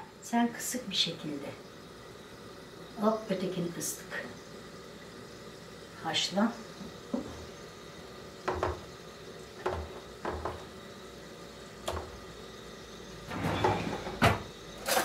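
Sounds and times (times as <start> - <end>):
kitchen drawer pulled open: 13.3 - 15.0.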